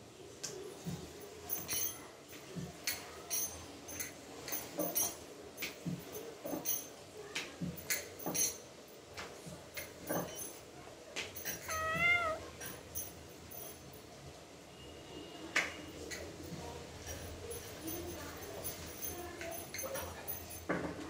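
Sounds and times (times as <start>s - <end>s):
kitten meowing: 11.7s - 12.5s.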